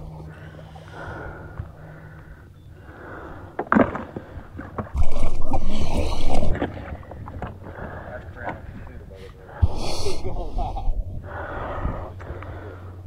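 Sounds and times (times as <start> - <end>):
water sloshing and gurgling: 0.0 - 9.8.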